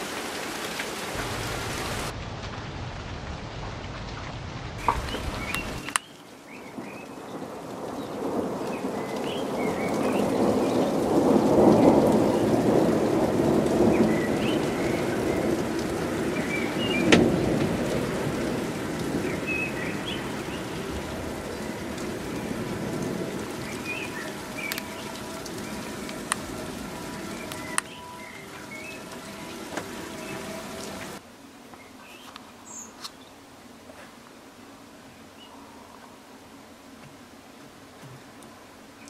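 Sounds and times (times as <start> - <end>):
hiss of freezing rain: 0.0 - 39.0
rolling thunder: 1.1 - 5.9, 6.7 - 31.2.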